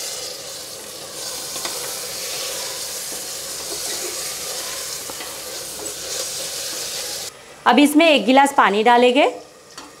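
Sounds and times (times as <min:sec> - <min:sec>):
food sizzling in oil: 0:00.0 - 0:07.3
wooden spatula scraping and tapping: 0:01.4 - 0:06.9.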